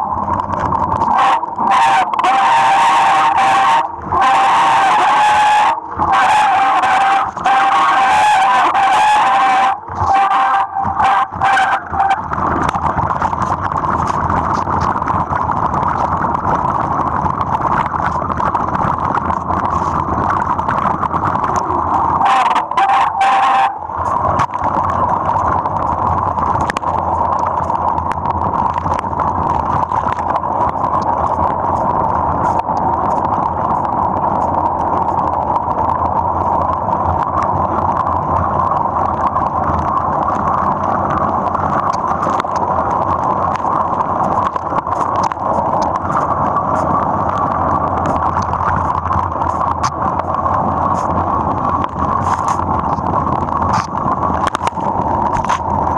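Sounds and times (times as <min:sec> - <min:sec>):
short steady whine: 0:00.0 - 0:16.1, 0:19.3 - 0:35.4
bike tyre and wind rush: 0:00.0 - 0:55.9.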